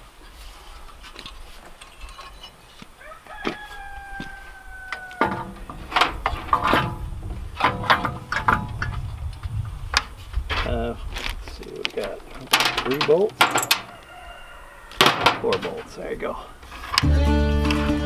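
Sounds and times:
rooster crowing: 3.0s - 5.7s, 13.8s - 15.2s.

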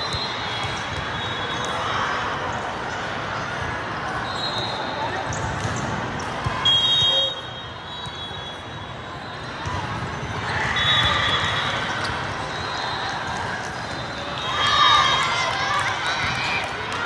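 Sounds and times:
referee's whistle: 0.0s - 1.8s, 4.2s - 5.0s, 6.6s - 9.4s, 10.6s - 13.0s.

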